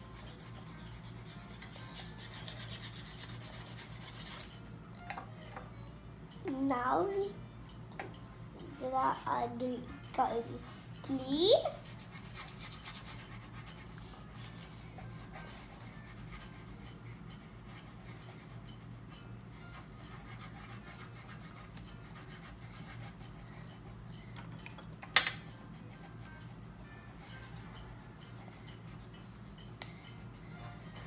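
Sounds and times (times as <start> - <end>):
pencil scratching on paper: 0.0 - 4.5, 10.4 - 24.0, 25.4 - 31.0.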